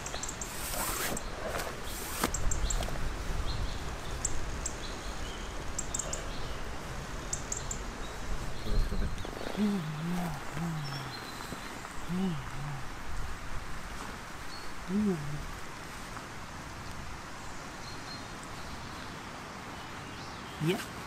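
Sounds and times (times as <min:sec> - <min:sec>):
small birds chirping: 0:00.0 - 0:21.0
low wavering voice-like sound: 0:09.6 - 0:11.2, 0:12.1 - 0:13.0, 0:14.9 - 0:15.5.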